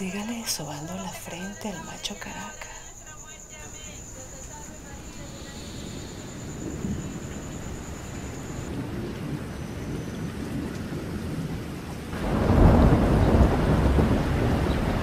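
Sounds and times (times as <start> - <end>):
thunder rumbling: 3.8 - 15.0
heavy rain rushing: 4.8 - 15.0.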